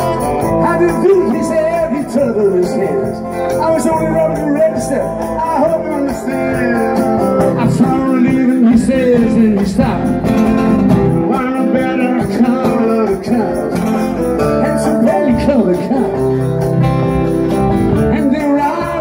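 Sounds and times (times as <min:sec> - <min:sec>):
man singing: 0:00.0 - 0:16.7, 0:17.9 - 0:19.0
bass guitar: 0:00.0 - 0:19.0
drums: 0:00.0 - 0:19.0
guitars: 0:00.0 - 0:19.0.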